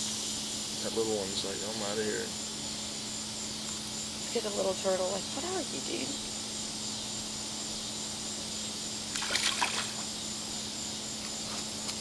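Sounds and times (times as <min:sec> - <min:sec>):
steady hiss: 0:00.0 - 0:12.0
water splash: 0:09.1 - 0:10.0.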